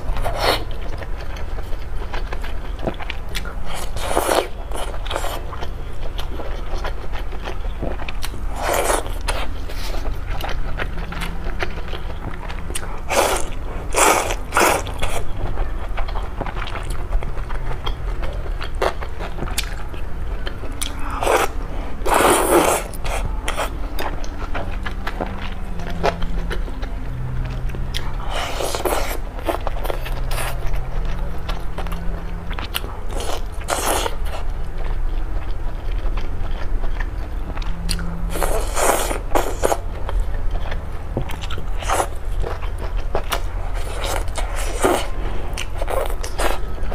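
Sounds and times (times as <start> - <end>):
steady low hum: 0.0 - 46.9
person biting and chewing: 3.0 - 15.3, 18.6 - 26.8, 27.7 - 34.5, 36.1 - 46.9
noodles slurped: 13.0 - 15.0, 20.8 - 23.7.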